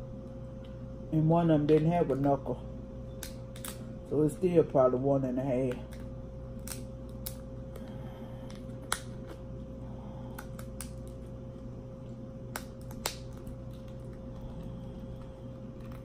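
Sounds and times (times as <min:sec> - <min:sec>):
faint steady hum: 0:00.0 - 0:16.0
crab shell cracking: 0:03.2 - 0:03.8, 0:05.8 - 0:09.5, 0:10.2 - 0:11.3, 0:12.4 - 0:16.0.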